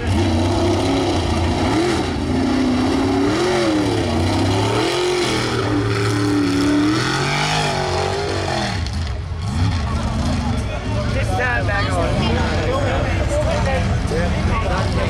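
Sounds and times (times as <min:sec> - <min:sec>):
truck engines revving hard: 0:00.0 - 0:15.0.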